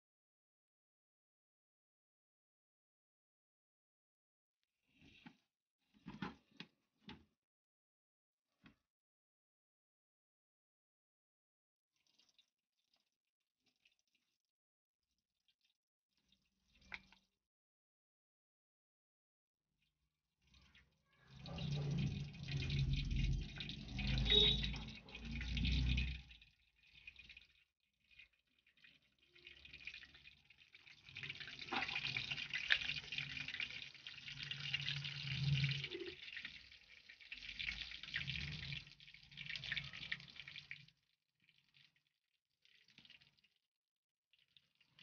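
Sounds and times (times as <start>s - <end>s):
oil sizzling in a frying pan: 29.6s - 40.8s.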